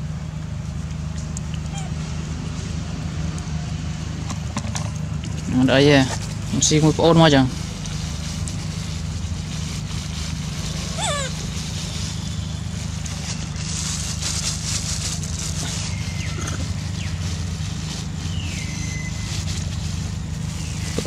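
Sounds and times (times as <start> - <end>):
plastic bag crinkling: 5.9 - 21.0.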